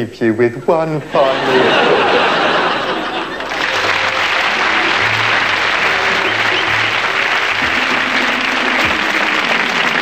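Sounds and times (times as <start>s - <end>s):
audience applauding: 1.2s - 10.0s
music with bass line: 3.8s - 10.0s.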